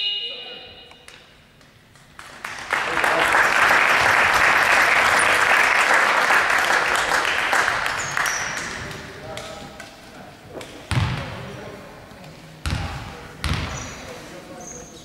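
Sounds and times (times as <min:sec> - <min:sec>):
spectators clapping: 0:02.0 - 0:09.0.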